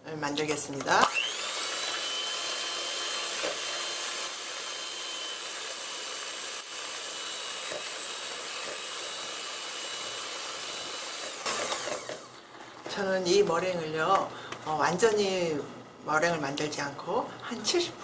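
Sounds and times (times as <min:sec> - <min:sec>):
electric hand mixer whisking: 0:00.6 - 0:14.3.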